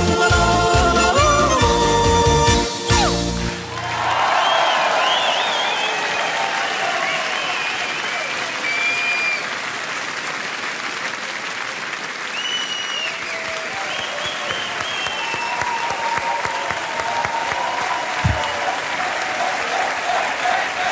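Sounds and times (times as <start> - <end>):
audience applauding: 3.0 - 20.9
low thump: 18.2 - 18.6.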